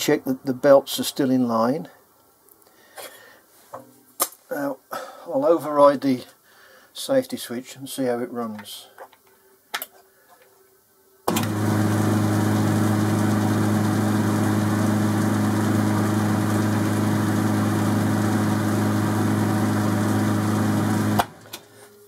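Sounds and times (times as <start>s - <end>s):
lathe motor running: 11.3s - 21.4s.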